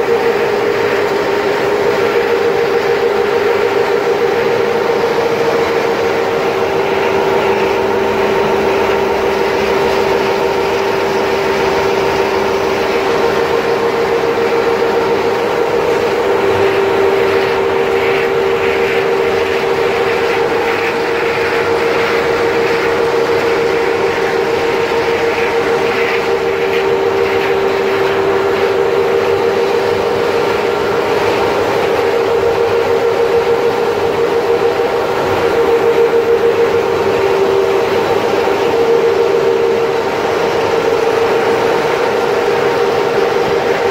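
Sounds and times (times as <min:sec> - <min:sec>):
machinery hum: 0:00.0 - 0:43.9.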